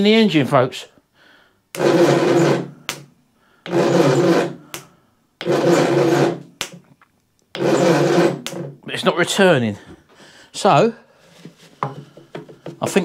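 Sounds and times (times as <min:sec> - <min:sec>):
starter motor cranking engine: 0:01.8 - 0:02.7, 0:03.6 - 0:04.6, 0:05.4 - 0:06.4, 0:07.5 - 0:08.8.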